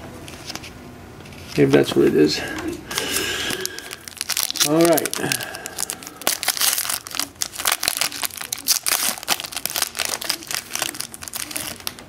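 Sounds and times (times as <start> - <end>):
foil wrappers crinkling: 2.9 - 12.0.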